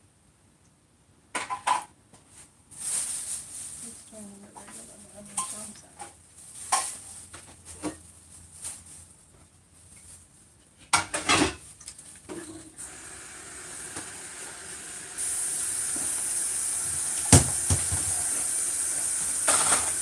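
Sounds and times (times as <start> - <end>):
steady hiss: 12.7 - 20.0.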